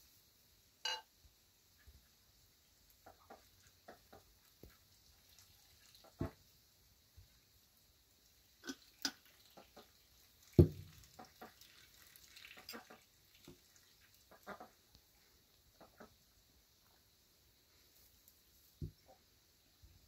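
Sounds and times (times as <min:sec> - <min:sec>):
glasses tapping and clinking: 0:00.9 - 0:01.1
bottle thump on table: 0:10.6 - 0:10.8.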